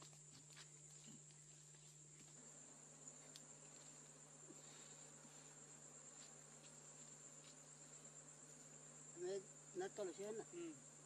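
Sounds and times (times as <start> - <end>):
insect trilling: 2.9 - 11.0.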